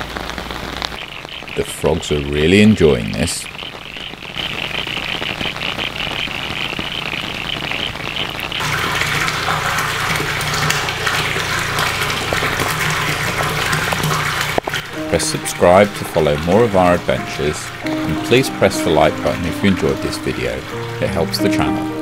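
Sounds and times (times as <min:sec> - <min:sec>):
rain falling on a pond: 0:00.0 - 0:22.0
frogs calling in chorus: 0:00.8 - 0:08.6
water pouring from pipe into tank: 0:02.8 - 0:22.0.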